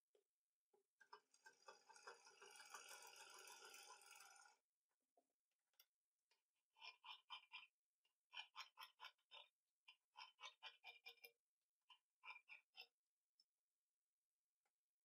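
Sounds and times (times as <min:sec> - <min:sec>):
sewing machine stitching: 0:01.1 - 0:04.6.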